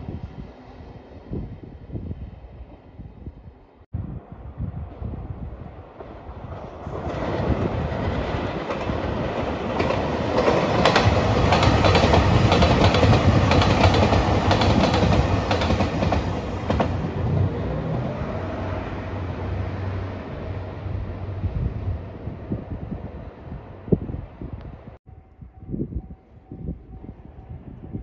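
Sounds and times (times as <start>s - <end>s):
train wheels clacking over rail joints: 7.0s - 17.0s.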